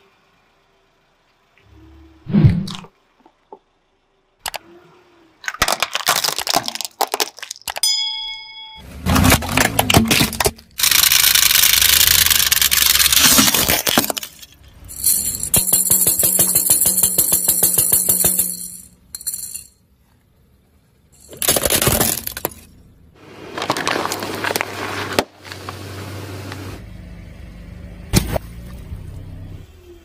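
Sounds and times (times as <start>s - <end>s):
plastic toy crushed by tyre: 5.4s - 7.8s, 9.0s - 14.6s, 21.3s - 22.7s, 23.5s - 25.7s
toy maraca shaken: 14.9s - 19.7s.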